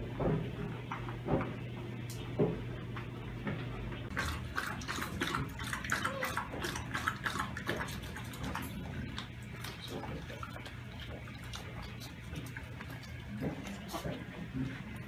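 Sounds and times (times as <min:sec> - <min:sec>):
dog lapping water: 0:04.1 - 0:15.0.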